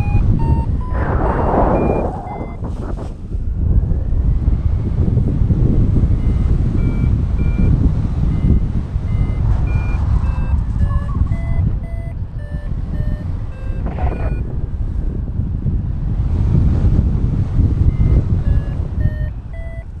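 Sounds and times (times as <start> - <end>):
variometer beeping: 0.0 - 3.0, 5.9 - 14.5, 17.7 - 20.0
wind rushing over microphone: 0.0 - 20.0.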